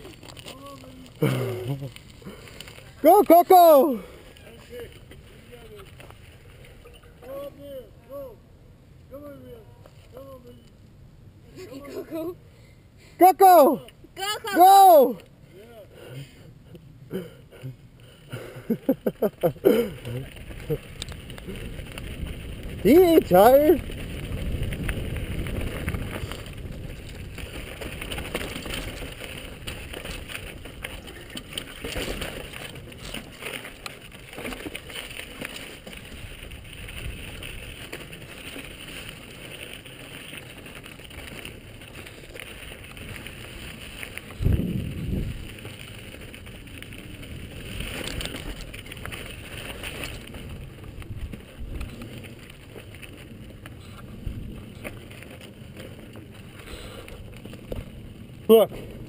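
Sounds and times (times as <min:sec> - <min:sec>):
bike tyre and frame noise: 0:00.0 - 0:59.0
wind on microphone: 0:20.6 - 0:31.3, 0:44.3 - 0:45.6.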